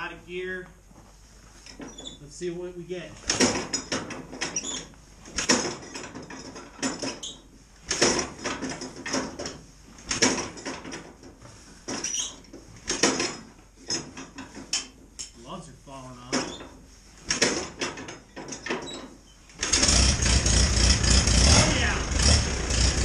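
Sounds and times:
tractor hand crank clattering: 3.2 - 15.4, 16.3 - 21.6.

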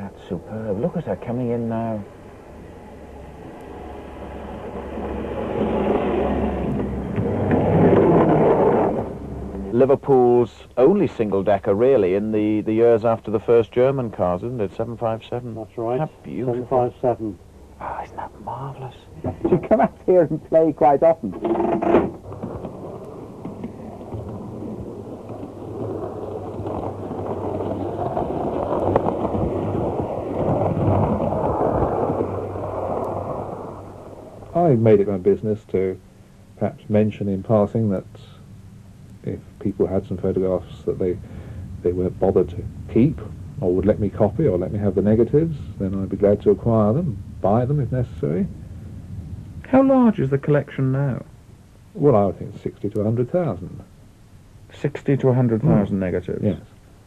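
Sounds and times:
model tram rumbling on rails: 0.0 - 17.4, 19.5 - 35.2
steady low hum: 0.0 - 57.0.

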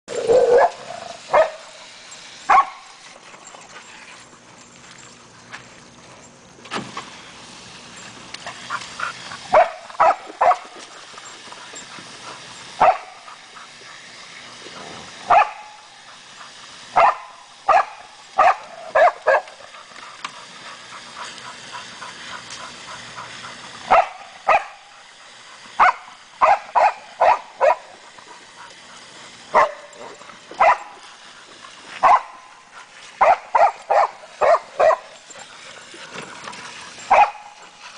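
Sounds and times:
dog barking: 0.3 - 1.6, 9.5 - 10.6, 12.8 - 13.1, 15.3 - 15.8, 17.0 - 19.5, 23.9 - 24.8, 25.8 - 27.8, 29.6 - 29.8, 30.6 - 30.8, 33.2 - 35.0, 37.1 - 37.5.

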